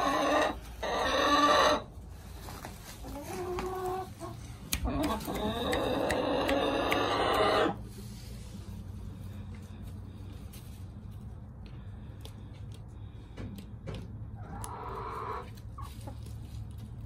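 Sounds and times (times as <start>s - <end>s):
chickens clucking and squawking: 0.0s - 10.4s, 14.0s - 16.8s.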